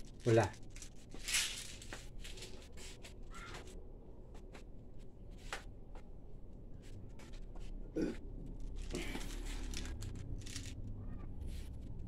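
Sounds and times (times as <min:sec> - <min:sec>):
toy gun and pellets rattling: 0:00.0 - 0:02.6, 0:08.6 - 0:11.0.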